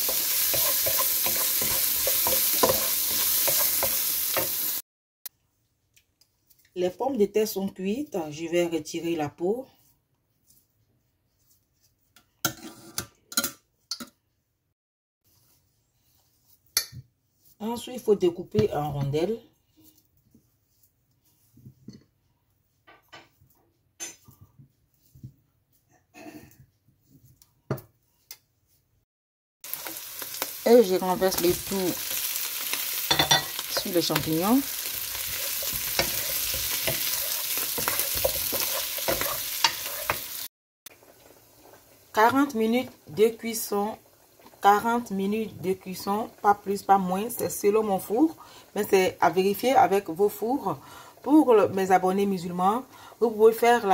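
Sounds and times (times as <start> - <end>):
food sizzling in a frying pan: 0.0 - 4.8, 29.6 - 53.9
wooden spoon scraping a pan: 0.0 - 4.8, 29.7 - 45.1.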